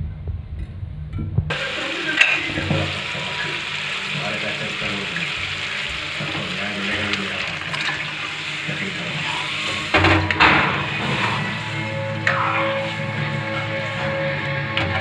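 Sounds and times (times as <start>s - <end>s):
liquid hissing in hot oil: 1.5s - 14.3s
ladle stirring in pan: 1.5s - 14.6s.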